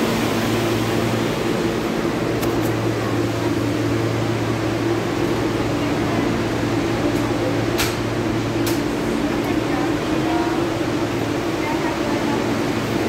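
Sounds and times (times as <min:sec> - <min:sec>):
subway car interior hum: 0:00.0 - 0:13.0.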